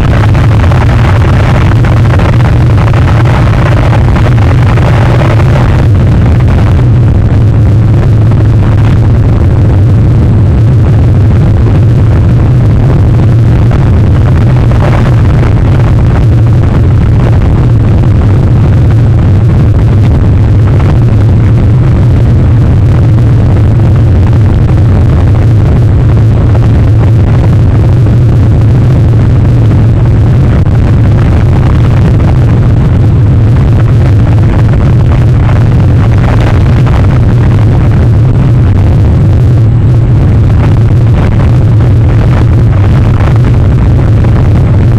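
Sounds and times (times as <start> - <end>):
wind buffeting microphone: 0.0 - 44.9.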